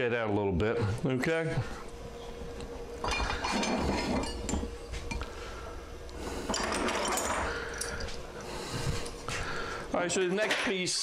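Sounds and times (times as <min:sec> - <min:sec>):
metal parts clinking and clattering: 0:06.5 - 0:08.2.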